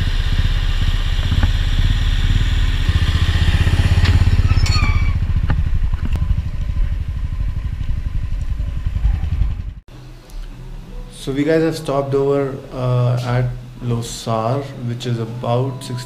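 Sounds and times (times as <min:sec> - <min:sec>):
motorcycle rattling over gravel: 0:00.0 - 0:09.8
motorcycle engine thumping: 0:00.0 - 0:09.9.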